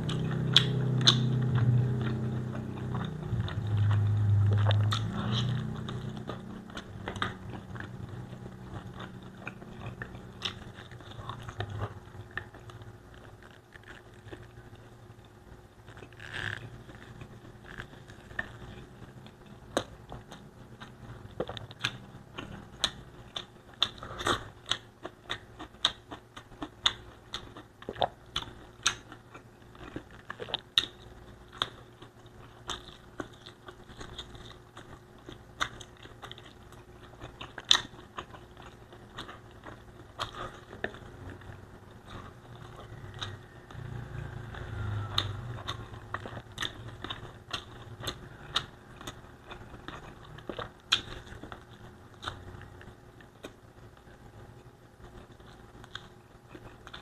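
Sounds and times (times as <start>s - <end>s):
close chewing mouth clicks: 0.0s - 14.9s, 15.9s - 53.6s
low rumble: 0.2s - 9.6s.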